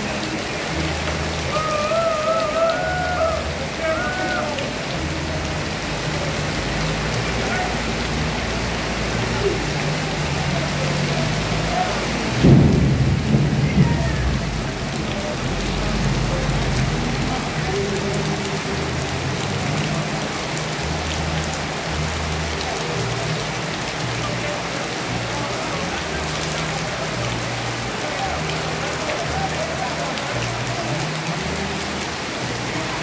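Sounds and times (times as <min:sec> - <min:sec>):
heavy rain hissing: 0:00.0 - 0:33.0
thunder clap rumbling: 0:12.3 - 0:15.7.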